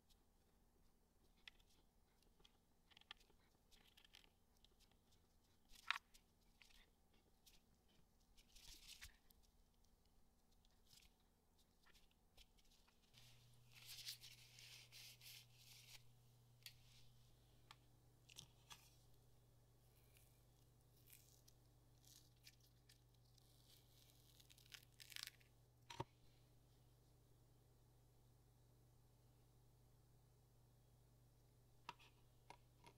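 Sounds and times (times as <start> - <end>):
silicone mold crackling and rustling: 0.1 - 26.1.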